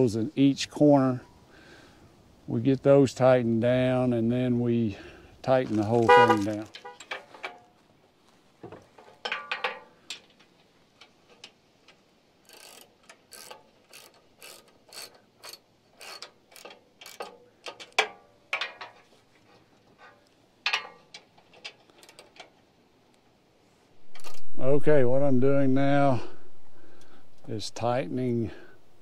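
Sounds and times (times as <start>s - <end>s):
ratchet wrench clicking: 12.4s - 18.1s.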